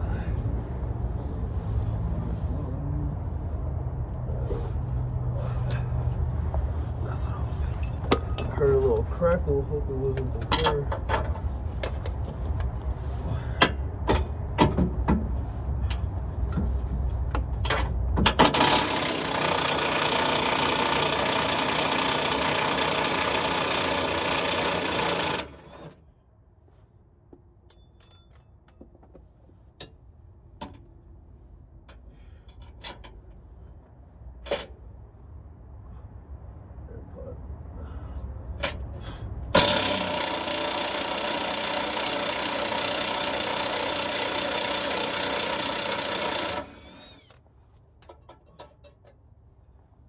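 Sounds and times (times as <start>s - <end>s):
hand tools clicking and knocking: 10.2s - 12.7s, 39.6s - 47.4s, 48.0s - 49.2s
cordless power wrench running: 18.4s - 26.0s, 39.6s - 47.4s.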